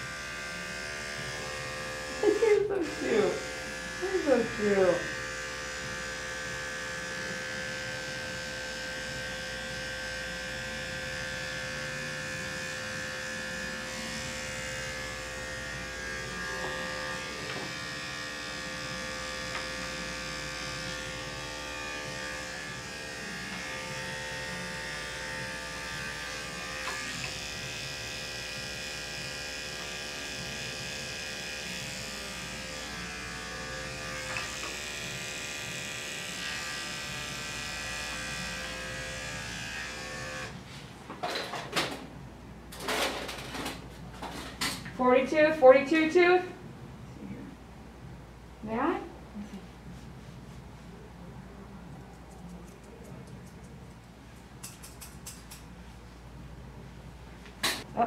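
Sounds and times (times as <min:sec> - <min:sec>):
electric clippers buzzing: 0:00.0 - 0:40.6.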